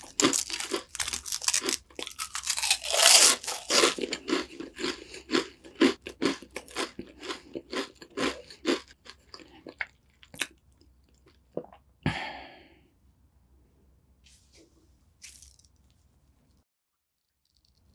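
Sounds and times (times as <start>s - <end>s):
person chewing crunchy cookie: 0.0s - 11.8s.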